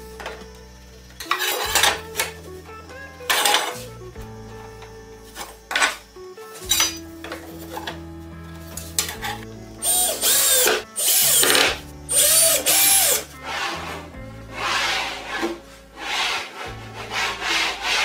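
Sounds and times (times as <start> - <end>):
cordless drill driving screws: 9.8 - 13.7
rubbing strokes on wood: 13.4 - 18.0.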